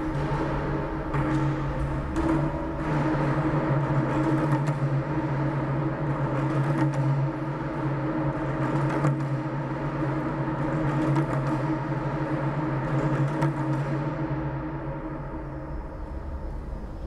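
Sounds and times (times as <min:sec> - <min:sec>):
resonant low drone: 0:00.0 - 0:06.0.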